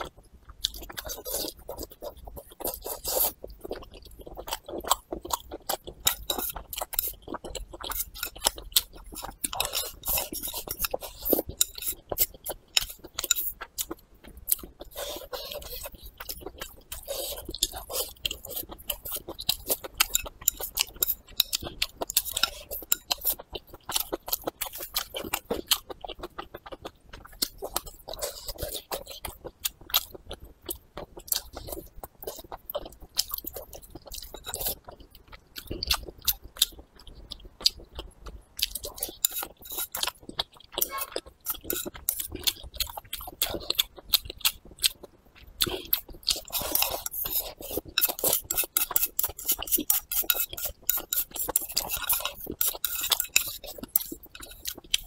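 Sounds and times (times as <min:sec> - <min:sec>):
person chewing food: 0:00.0 - 0:55.0.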